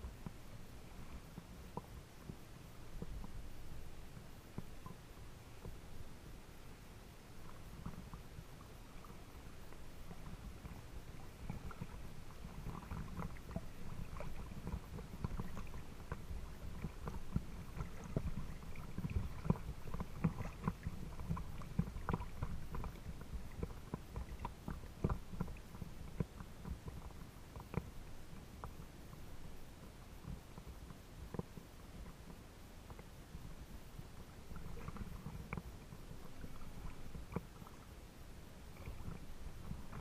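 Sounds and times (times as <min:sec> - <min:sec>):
small waves lapping and splashing: 0:00.0 - 0:40.0.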